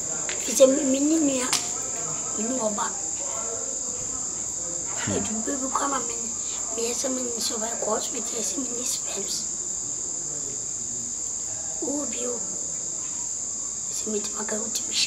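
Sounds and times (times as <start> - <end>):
crickets chirring: 0.0 - 15.0
child's voice: 0.5 - 1.6, 5.1 - 9.4, 11.8 - 12.5, 14.0 - 15.0.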